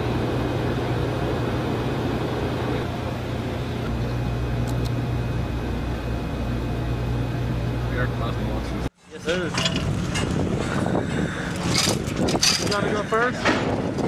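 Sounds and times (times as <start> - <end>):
low electrical buzz: 0.0 - 10.0
electronics and ventilation hum: 0.0 - 14.0.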